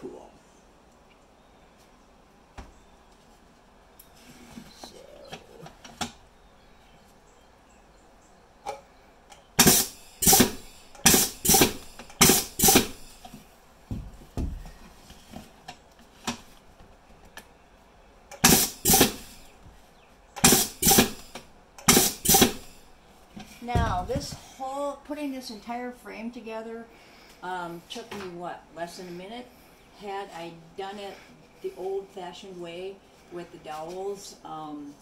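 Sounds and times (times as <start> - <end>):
pneumatic nailer clacking: 9.6 - 13.3, 18.3 - 19.5, 20.4 - 22.8.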